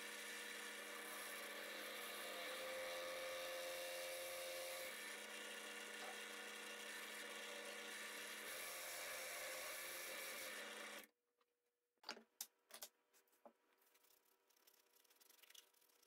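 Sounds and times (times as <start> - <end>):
drill press motor hum: 0.1 - 11.1
sandpaper rubbing in hole: 13.9 - 16.0.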